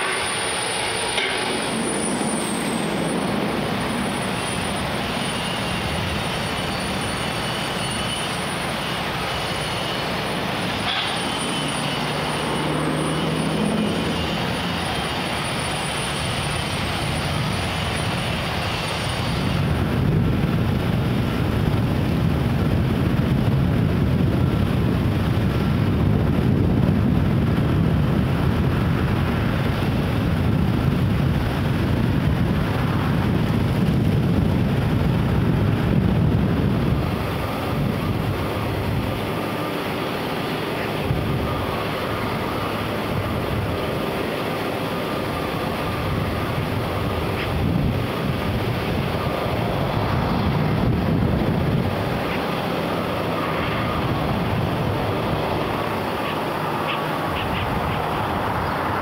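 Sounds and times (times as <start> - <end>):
faint high whine: 0.0 - 20.8, 36.0 - 59.0
outdoor rumble and hiss: 0.0 - 59.0.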